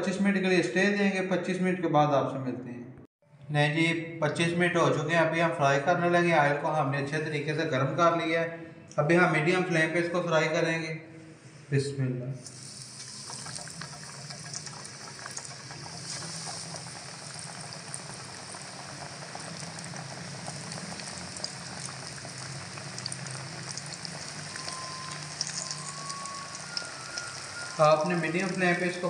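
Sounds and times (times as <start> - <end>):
fish deep-frying in hot oil: 12.4 - 29.0.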